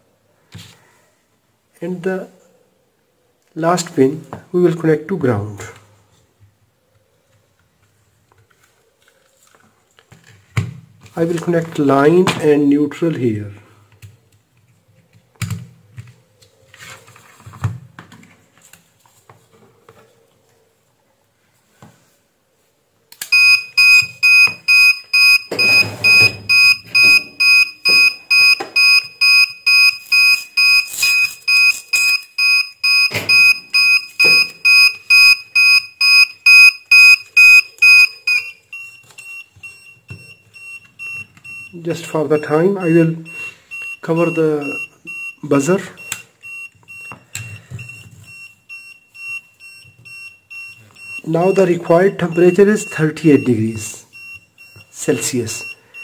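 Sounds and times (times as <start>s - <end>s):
alarm buzzer beeping: 23.3s - 41.8s.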